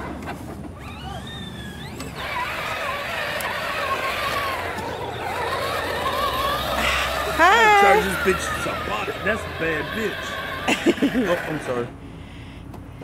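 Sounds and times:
electric toy motor whining: 0:00.8 - 0:11.9.

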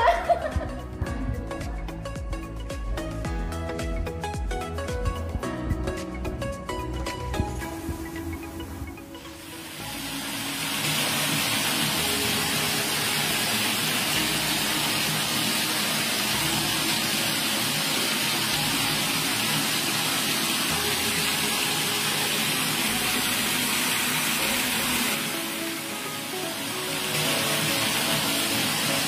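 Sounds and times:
tap running water into bathtub: 0:09.2 - 0:29.0.

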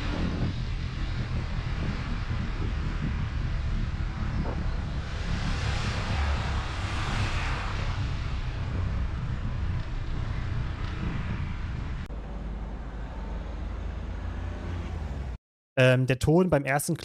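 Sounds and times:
jet-like wind rush: 0:00.0 - 0:12.1
low rumble: 0:00.0 - 0:15.4.

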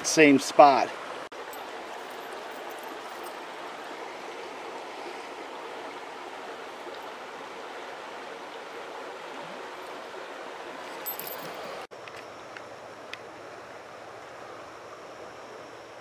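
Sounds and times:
creek water babbling: 0:00.0 - 0:11.9.

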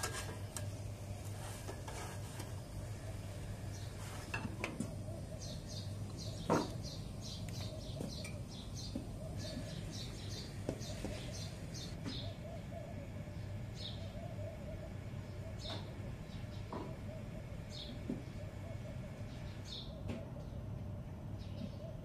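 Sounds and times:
steady low hum: 0:00.0 - 0:22.0
small bird chirping: 0:05.1 - 0:18.5.

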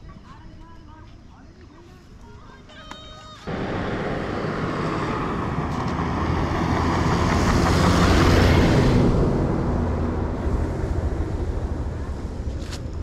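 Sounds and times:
vehicle engine rushing: 0:03.5 - 0:13.0.

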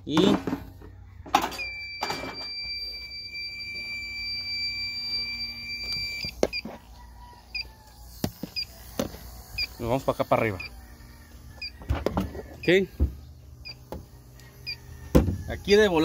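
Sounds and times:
leak detector beeping: 0:01.5 - 0:06.8, 0:07.5 - 0:10.8, 0:11.6 - 0:11.9, 0:12.6 - 0:13.0, 0:13.6 - 0:16.0
leak detector chirps: 0:01.6 - 0:06.7, 0:07.5 - 0:09.8, 0:13.6 - 0:14.9.

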